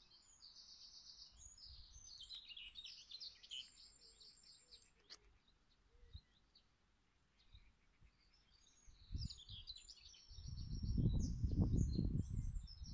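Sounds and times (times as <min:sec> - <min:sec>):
small birds chirping: 0:00.0 - 0:12.9
low rumble on microphone: 0:10.3 - 0:12.9.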